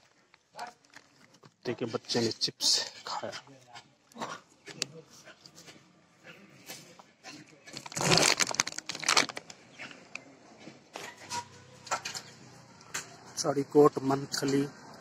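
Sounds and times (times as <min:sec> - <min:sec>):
potato chips and packet crinkling: 0:07.7 - 0:09.6.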